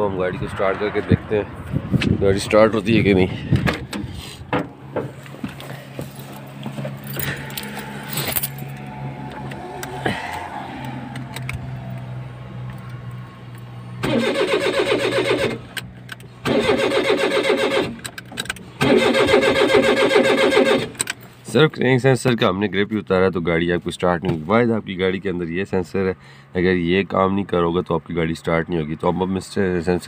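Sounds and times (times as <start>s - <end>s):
keys rattling: 6.2s - 8.9s
starter motor cranking: 14.0s - 15.7s, 16.4s - 21.2s.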